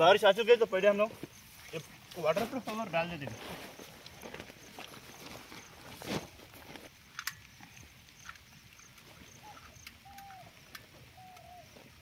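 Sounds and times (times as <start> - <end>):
light ticks: 7.2 - 11.6
faint animal call: 9.3 - 12.0.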